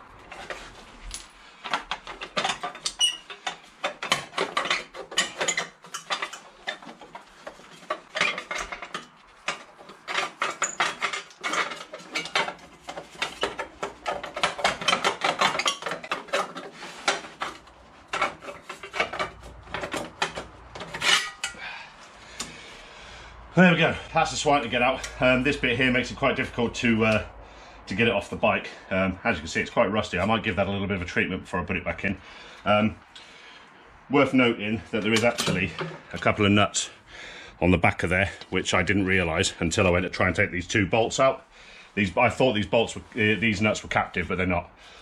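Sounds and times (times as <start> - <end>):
metal tools clinking: 0.2 - 21.7.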